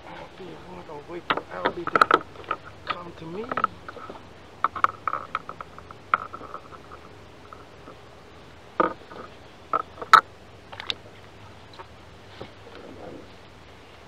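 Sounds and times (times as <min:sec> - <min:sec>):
sharp knocks and taps: 0:01.3 - 0:08.0.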